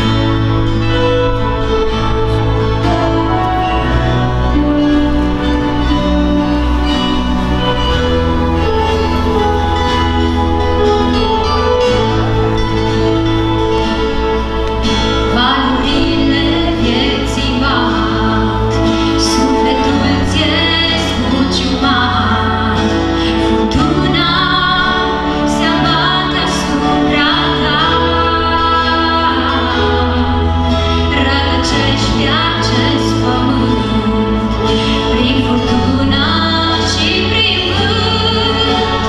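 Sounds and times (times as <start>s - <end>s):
bass and keyboard chords: 0.0s - 39.0s
women singing: 15.3s - 39.0s.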